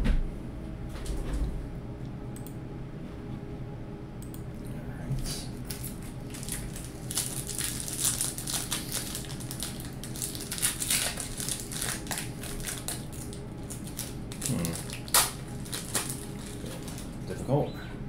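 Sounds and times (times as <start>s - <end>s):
foil wrapper crinkling and tearing: 5.7s - 17.3s.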